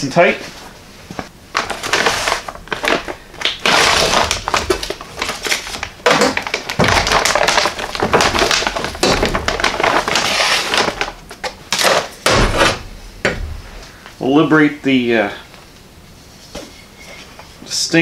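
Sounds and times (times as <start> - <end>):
plastic packaging crinkling: 1.5 - 12.1.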